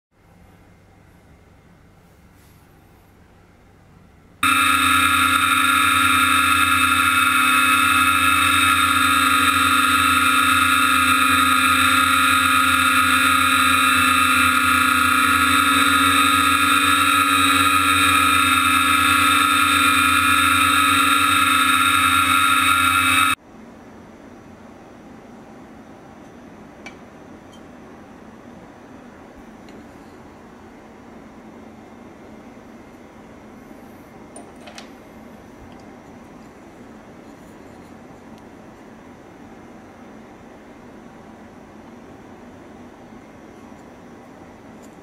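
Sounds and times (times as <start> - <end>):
drone motors and propellers: 4.4 - 23.4.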